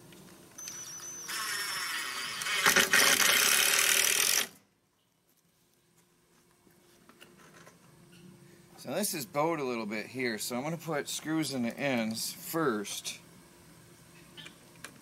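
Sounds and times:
cordless drill driving screw into wood: 0.6s - 4.6s.

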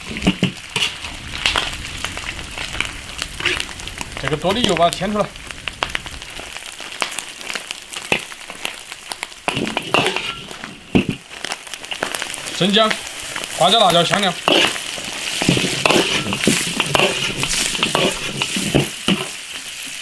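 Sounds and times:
pork sizzling in a wok: 0.0s - 20.0s
metal ladle clinking and scraping: 9.5s - 11.2s, 14.4s - 14.8s, 15.4s - 19.4s.

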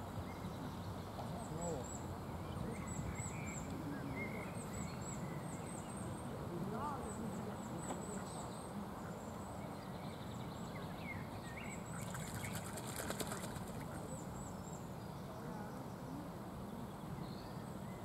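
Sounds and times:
small birds chirping: 0.1s - 18.0s
wingbeats fluttering: 11.9s - 14.1s.

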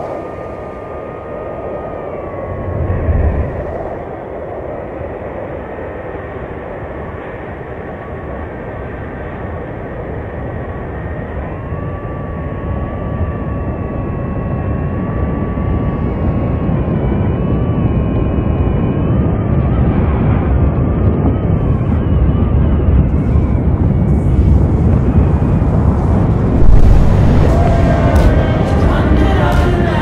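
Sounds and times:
deep steady roar: 0.0s - 30.0s
thin wavering whine: 0.0s - 30.0s
crackling bursts: 24.4s - 30.0s.

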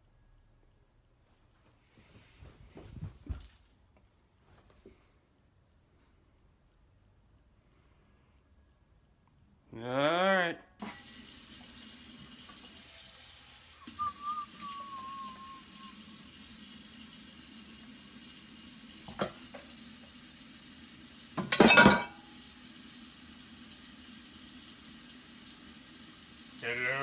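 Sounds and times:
tap water running into sink: 10.8s - 27.0s
clatter of dishes: 21.4s - 22.2s
dishes clinking: 21.4s - 22.2s.

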